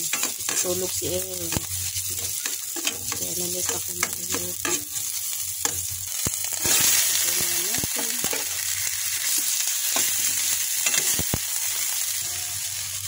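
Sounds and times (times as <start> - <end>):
food sizzling in hot oil: 0.0 - 13.0
metal spoon scraping a pot: 1.5 - 5.9.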